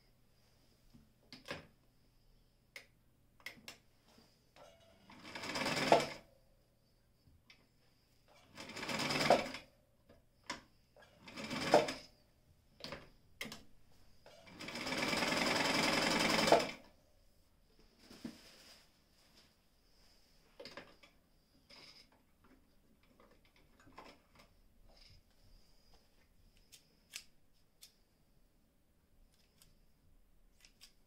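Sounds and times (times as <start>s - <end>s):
sewing machine stitching: 4.6s - 6.2s, 8.3s - 9.7s, 11.0s - 12.1s, 14.3s - 16.9s.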